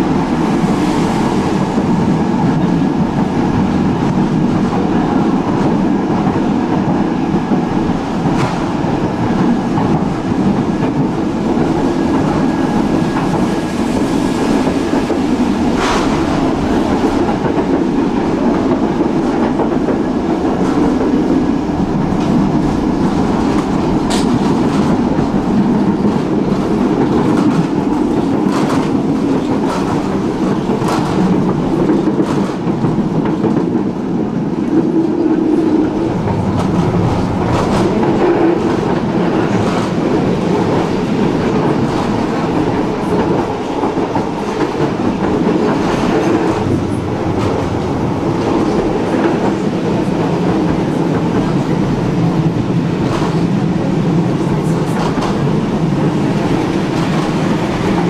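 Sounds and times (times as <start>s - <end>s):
tram wheels rumbling on rail: 0.0s - 58.0s.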